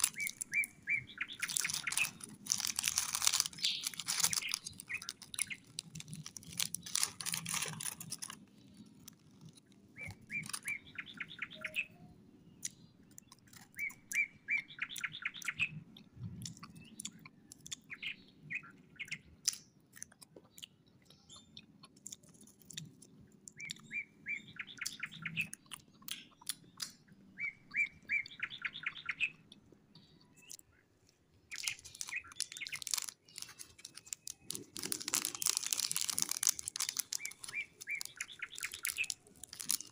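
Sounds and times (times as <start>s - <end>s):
plastic wrapper crinkling: 0.0s - 10.8s, 31.5s - 39.9s
crunching and chewing biscuit: 0.0s - 11.6s, 12.5s - 39.9s
bird chirping trills: 0.0s - 19.4s, 23.5s - 39.9s.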